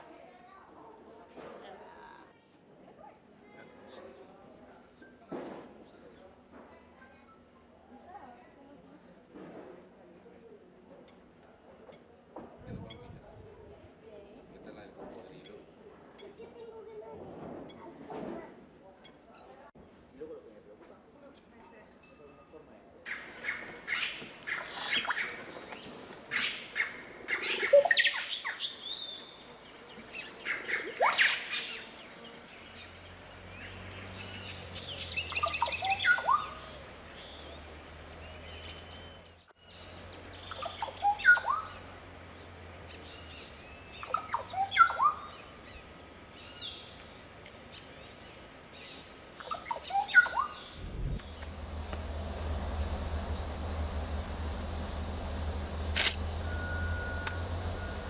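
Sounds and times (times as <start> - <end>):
caciques calling: 23.1 - 58.0.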